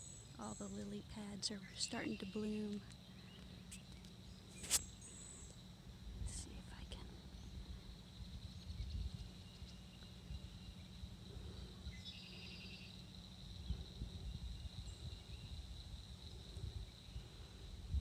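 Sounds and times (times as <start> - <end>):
high-pitched insect buzz: 3.6 - 5.6.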